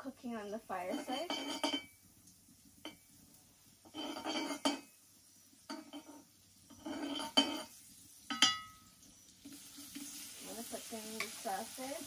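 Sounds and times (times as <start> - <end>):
metal spoon scraping pan: 0.7 - 2.0, 3.8 - 4.9, 5.7 - 8.8
spoon clinking on metal: 0.9 - 2.0, 8.3 - 8.9.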